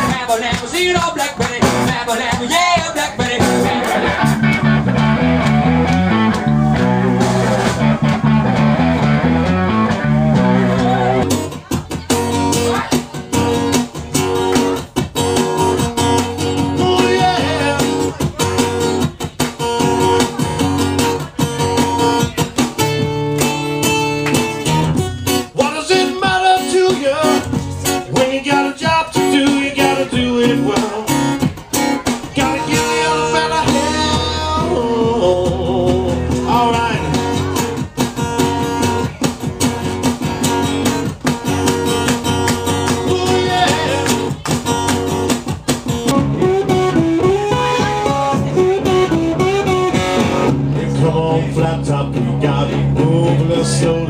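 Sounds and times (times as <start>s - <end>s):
man singing: 0.0s - 4.6s, 16.2s - 19.2s, 25.4s - 38.7s, 42.7s - 44.4s, 46.1s - 54.0s
strummed acoustic guitar: 0.0s - 54.0s.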